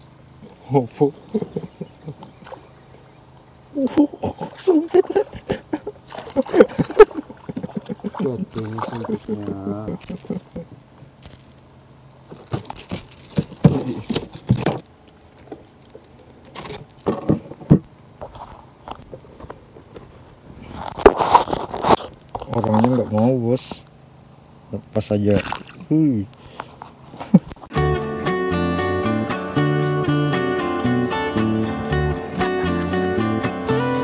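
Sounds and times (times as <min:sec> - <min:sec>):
high-pitched insect chorus: 0:00.0 - 0:34.0
knocks and handling sounds: 0:12.3 - 0:15.7, 0:16.5 - 0:23.3.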